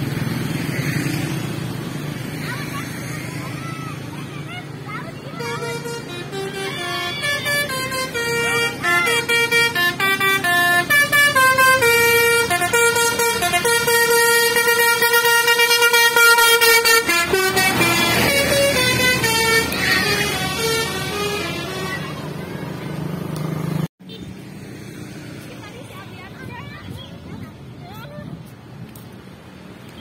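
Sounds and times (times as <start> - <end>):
bus passing engine and air noise: 0.0 - 30.0
musical air horn tune: 5.4 - 22.1.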